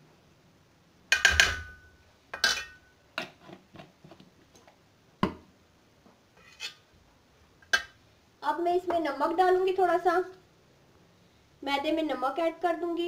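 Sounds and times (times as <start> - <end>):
metal spoon clinking in steel bowl: 1.1 - 2.9.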